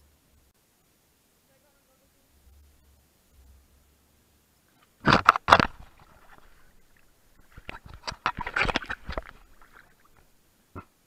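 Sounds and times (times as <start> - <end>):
pool water splashing: 4.7 - 11.0.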